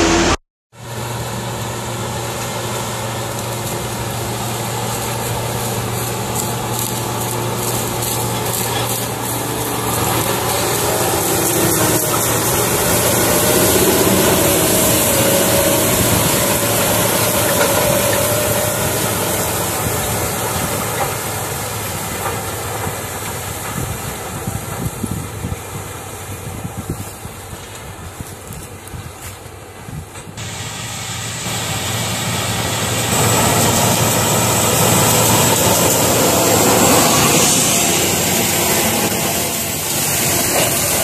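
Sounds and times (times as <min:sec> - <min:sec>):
tractor diesel engine passing: 0:00.0 - 0:26.8, 0:30.4 - 0:41.0
steady high hiss: 0:30.4 - 0:41.0.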